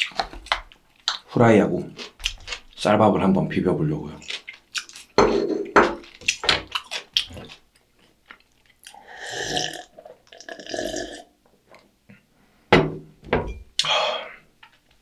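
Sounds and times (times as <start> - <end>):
mouth chewing and clicking: 0.0 - 1.3, 4.2 - 5.2, 6.1 - 9.0
gulping a drink: 8.8 - 11.3.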